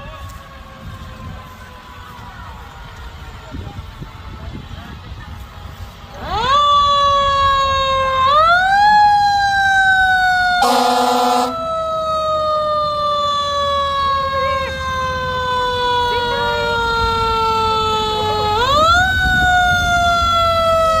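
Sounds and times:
fire engine siren: 0:00.0 - 0:21.0
horn blast: 0:10.6 - 0:11.6.

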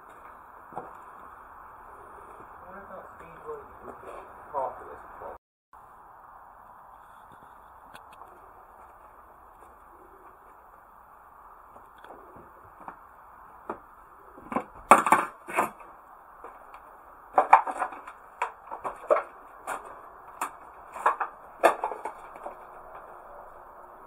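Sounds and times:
footsteps crunching over debris: 0:00.0 - 0:01.5, 0:08.2 - 0:10.9, 0:11.6 - 0:23.7.

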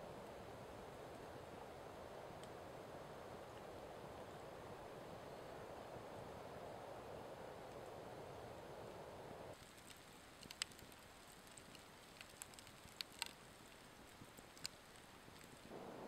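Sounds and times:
soft steady hiss: 0:00.0 - 0:16.0
campfire crackling and popping: 0:00.1 - 0:04.8, 0:08.7 - 0:15.9.

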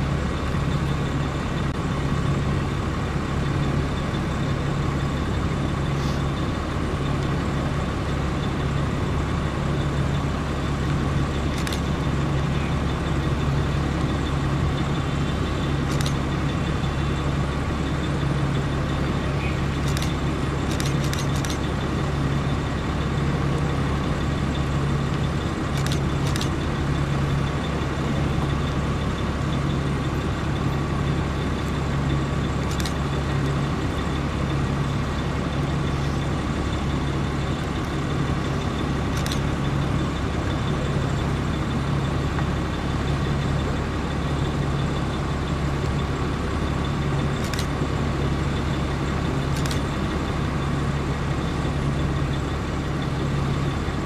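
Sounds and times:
vehicle engines droning: 0:00.0 - 0:54.0
faint clicks: 0:19.8 - 0:21.8, 0:32.6 - 0:33.1, 0:37.6 - 0:40.6.

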